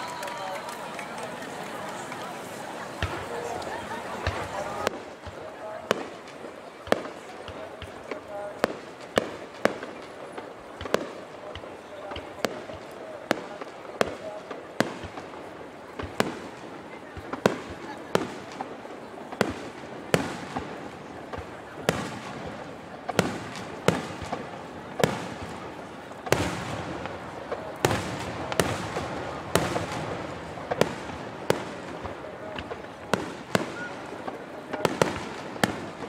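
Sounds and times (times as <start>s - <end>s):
fireworks bursting: 0.0s - 36.0s.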